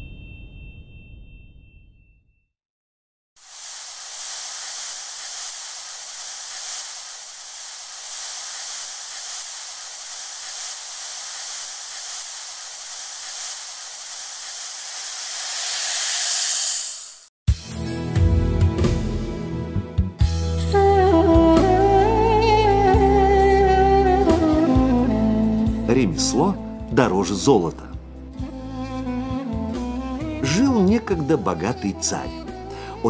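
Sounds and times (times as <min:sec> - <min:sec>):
steady hiss: 0:03.4 - 0:17.3
music: 0:17.5 - 0:33.0.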